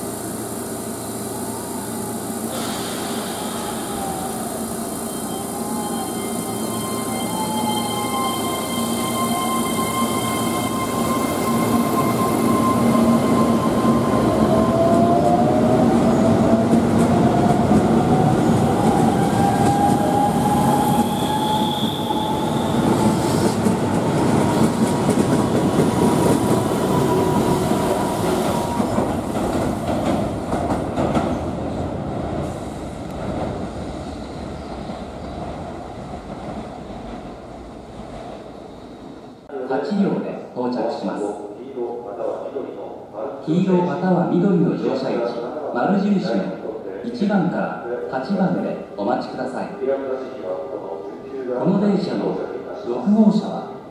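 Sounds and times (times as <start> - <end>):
train wheels rumbling on rails: 8.4 - 39.2.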